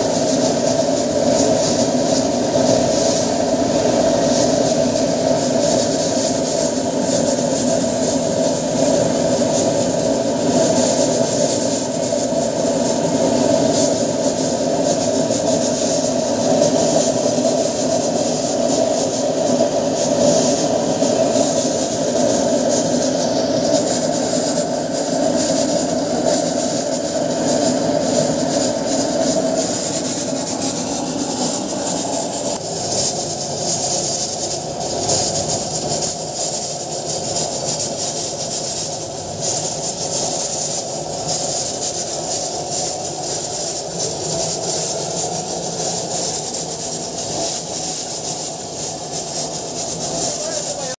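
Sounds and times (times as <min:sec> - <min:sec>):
oil burner roaring: 0:00.0 - 0:50.9.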